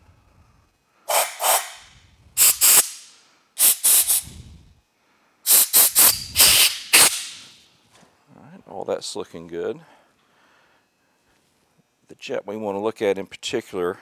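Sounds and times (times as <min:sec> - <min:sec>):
compressed air blasts: 0:01.1 - 0:04.6, 0:05.4 - 0:07.6.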